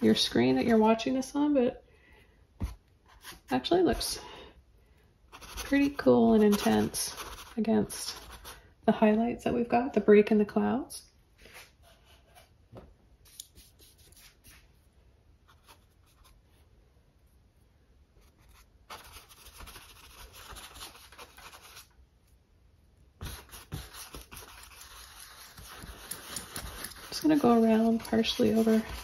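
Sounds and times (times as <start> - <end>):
brush scrubbing paint on canvas: 23.2 - 29.0.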